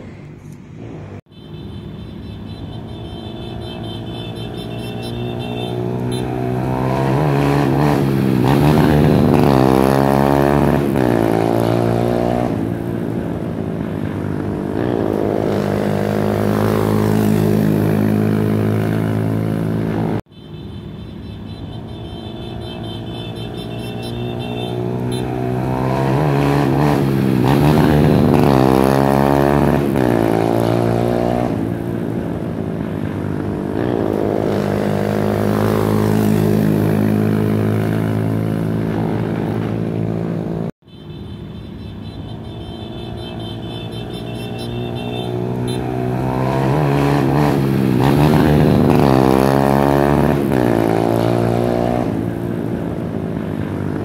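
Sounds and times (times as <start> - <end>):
motorcycle engines revving: 0.0 - 54.0.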